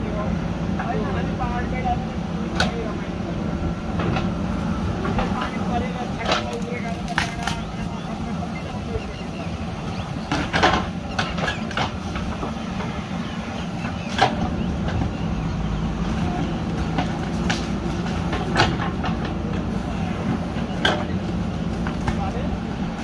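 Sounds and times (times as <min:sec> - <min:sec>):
diesel engine running under load: 0:00.0 - 0:23.0
backhoe bucket knocking: 0:10.1 - 0:13.0.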